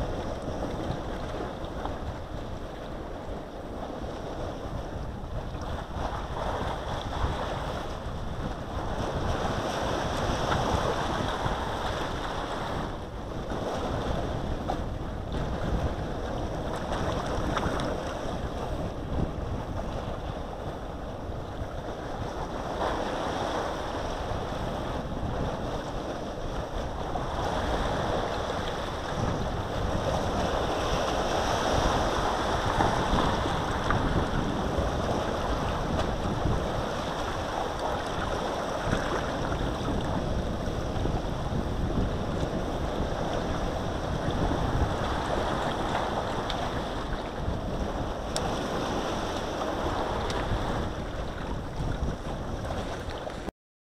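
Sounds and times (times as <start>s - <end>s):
sea waves washing on shore: 0.0s - 53.5s
wind rumbling on microphone: 0.0s - 53.5s.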